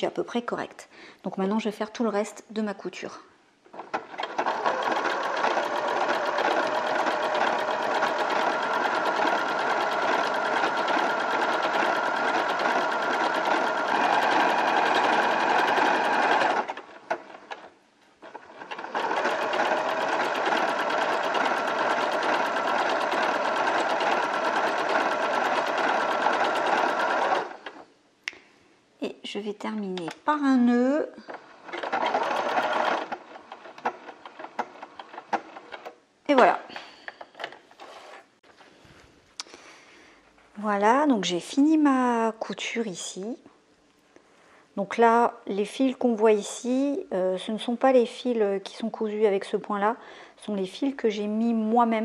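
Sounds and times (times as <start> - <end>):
sewing machine running: 3.8 - 17.6, 18.2 - 27.8, 31.6 - 35.8.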